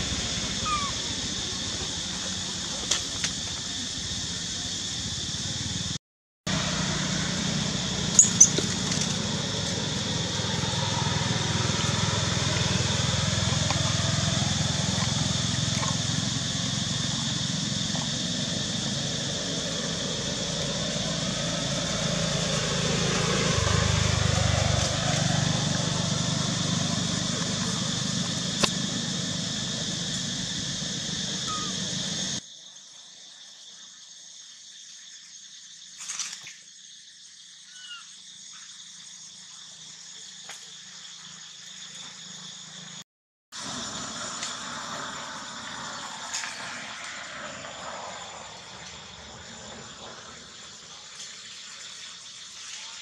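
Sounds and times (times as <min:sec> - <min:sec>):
high-pitched drone: 0:25.3 - 0:32.4.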